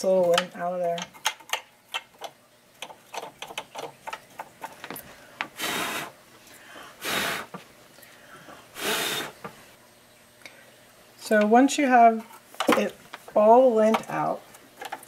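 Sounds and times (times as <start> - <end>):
breathy puffs of air: 5.2 - 9.4
brush scratching sewing machine: 5.5 - 6.2, 7.0 - 7.6, 8.7 - 9.5.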